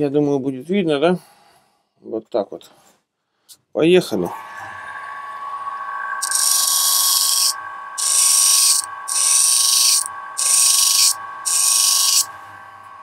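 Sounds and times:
grinder whine: 4.2 - 13.0
blade grinding high hiss: 6.2 - 12.3.

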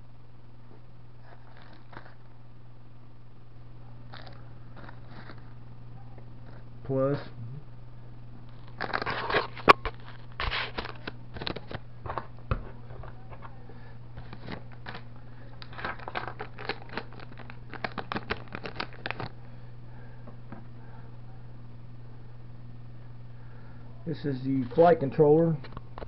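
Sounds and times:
steady low hum: 0.0 - 26.0
packaging rustling and crinkling: 8.5 - 11.8, 14.2 - 15.0, 15.6 - 19.4.

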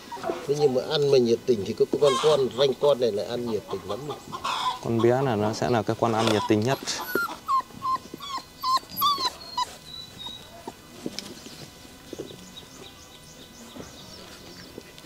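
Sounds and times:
puppy whimpering: 0.1 - 1.1, 2.0 - 2.5, 4.4 - 10.8.

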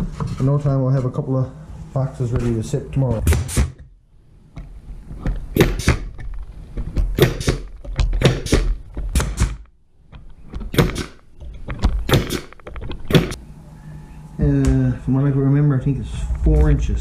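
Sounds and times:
air stapler firing into wood: 3.3 - 3.9, 5.5 - 6.2, 7.1 - 9.7, 10.6 - 13.4.

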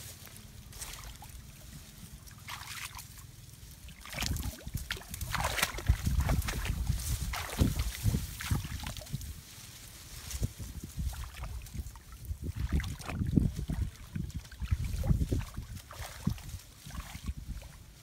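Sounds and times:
leaves and twigs rustling: 0.0 - 18.0
wind buffeting microphone: 4.1 - 9.5, 10.1 - 18.0.

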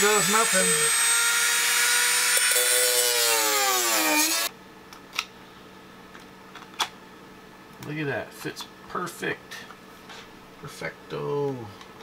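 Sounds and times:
rotary tool cutting wood: 0.0 - 4.5.

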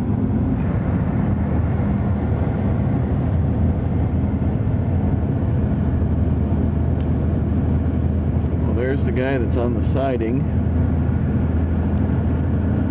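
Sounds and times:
car road and engine noise: 0.0 - 12.9.

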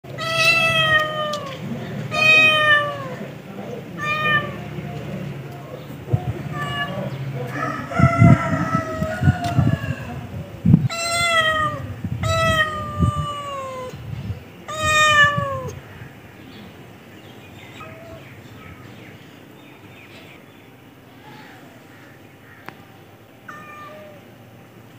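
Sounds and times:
cat meowing: 0.1 - 3.2, 4.0 - 4.7, 6.4 - 7.1, 10.9 - 14.0, 14.7 - 15.8, 17.7 - 18.2, 23.5 - 24.3.

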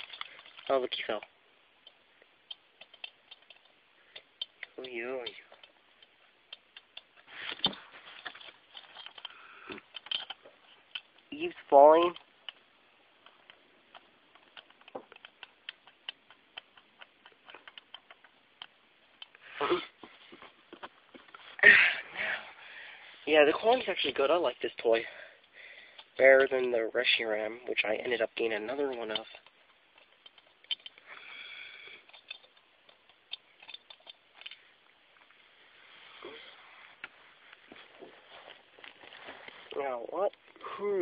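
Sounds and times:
plastic toy clicking and tapping: 1.8 - 7.8.

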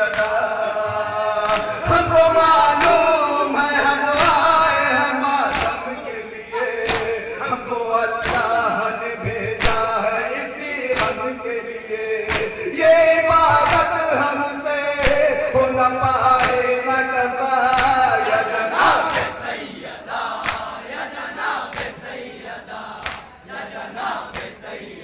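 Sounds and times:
men chanting a lament: 0.0 - 25.0
hands slapping: 5.5 - 5.8, 12.3 - 12.6, 20.3 - 20.8, 21.6 - 22.2, 23.0 - 23.3.

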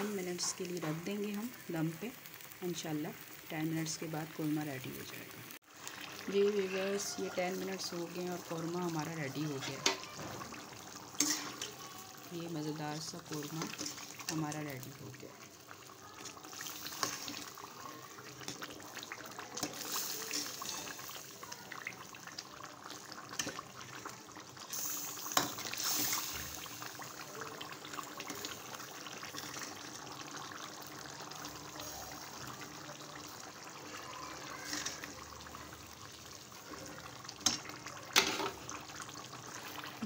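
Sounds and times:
gravy simmering and bubbling: 0.0 - 40.0.

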